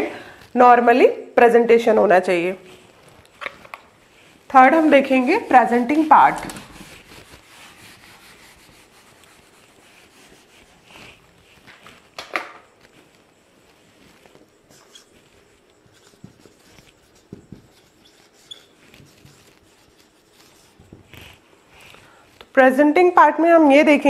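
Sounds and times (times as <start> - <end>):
whiteboard duster rubbing: 4.1 - 12.2, 12.8 - 22.1
marker pen scratching on whiteboard: 4.5 - 12.1, 13.9 - 22.0.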